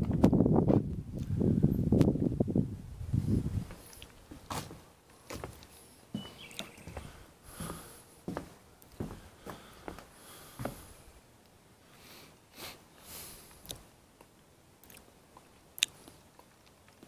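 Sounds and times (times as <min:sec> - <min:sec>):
footsteps and scuffs: 0:03.7 - 0:10.9.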